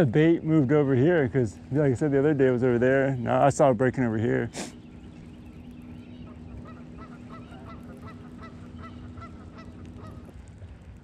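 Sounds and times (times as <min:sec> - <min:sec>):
steady low hum: 0:00.0 - 0:11.0
bird honking: 0:04.7 - 0:10.4.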